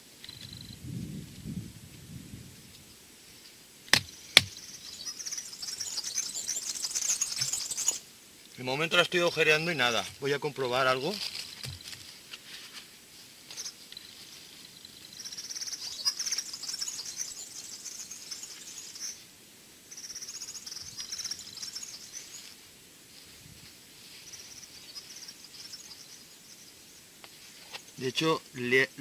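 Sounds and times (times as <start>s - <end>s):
high rapid chirping trills: 4.5s - 8.0s, 13.5s - 19.2s, 19.9s - 22.5s, 24.1s - 27.1s.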